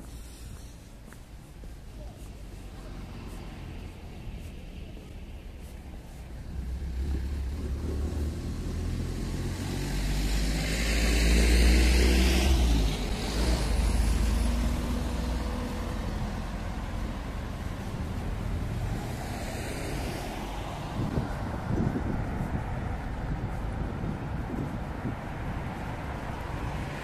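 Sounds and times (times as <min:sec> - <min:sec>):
vehicle passing close: 0:06.1 - 0:27.0.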